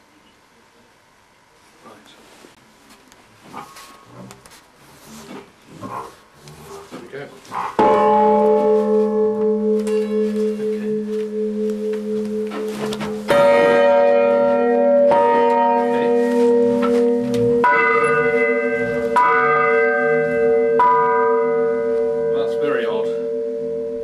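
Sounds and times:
church bells ringing: 7.8s - 24.0s.

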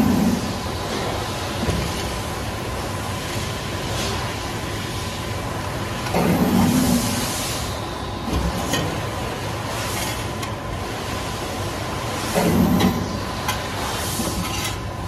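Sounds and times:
machine hum: 0.0s - 15.0s.

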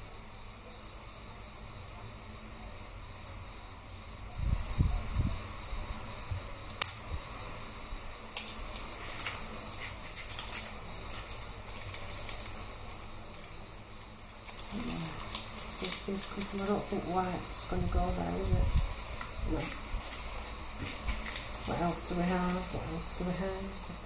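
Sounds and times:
faint steady hiss: 0.0s - 24.0s
paper rustling: 8.4s - 17.2s, 17.9s - 22.9s.

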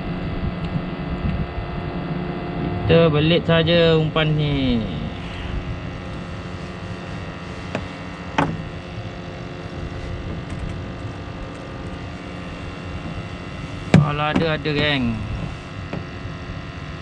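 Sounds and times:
motor hum: 0.0s - 17.0s
short knocks: 13.9s - 14.9s.

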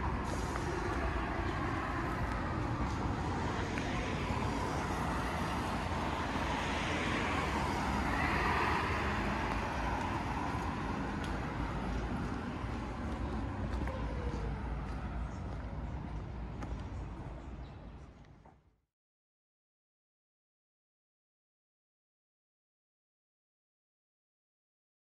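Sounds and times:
vehicle passing by: 0.0s - 16.1s
low traffic rumble: 0.0s - 18.8s.

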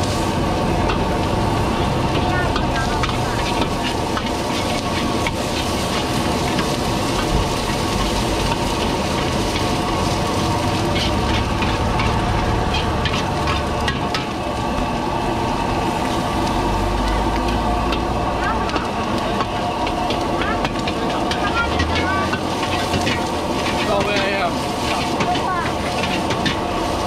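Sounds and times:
stir-fry sizzling in a wok: 0.0s - 27.0s
metal ladle scraping a pan: 2.6s - 14.3s, 20.6s - 27.0s.

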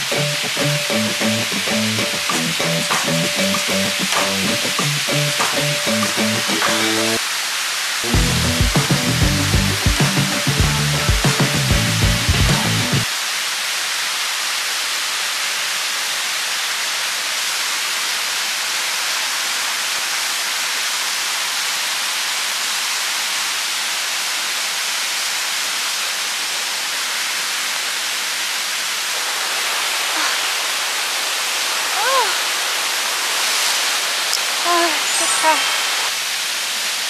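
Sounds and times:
stream running over rocks: 13.0s - 37.0s.

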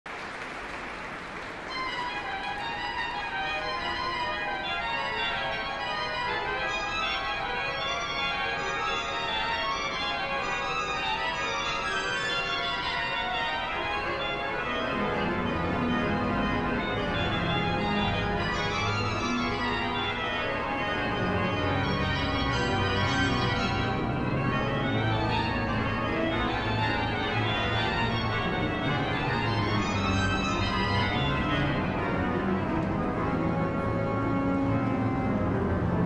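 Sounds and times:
pipe organ chords: 1.7s - 36.0s
low organ bass notes: 3.6s - 36.0s.

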